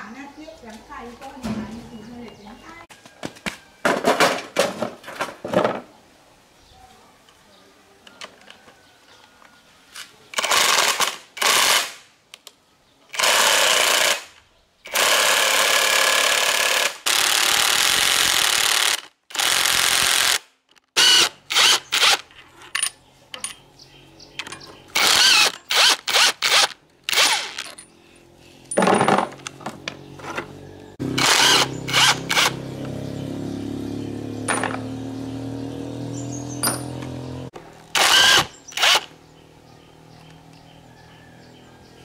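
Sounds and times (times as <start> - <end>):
metal tools clinking: 22.3 - 23.7, 27.5 - 29.5, 36.6 - 37.1
impact wrench hammering: 34.4 - 34.9.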